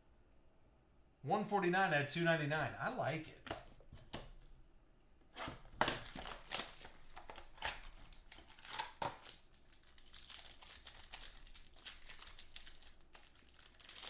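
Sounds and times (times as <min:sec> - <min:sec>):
plastic wrapping crinkling: 0:05.4 - 0:14.0.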